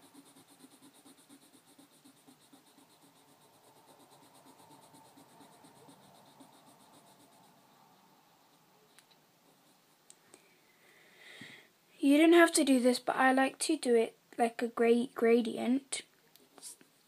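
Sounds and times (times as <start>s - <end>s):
pencil shading on paper: 0.0s - 10.0s.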